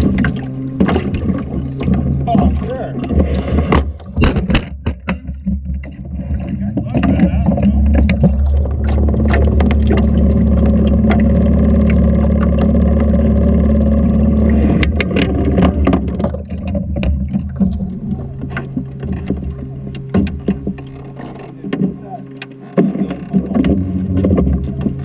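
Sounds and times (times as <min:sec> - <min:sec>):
boat motor running: 0:00.0 - 0:25.0.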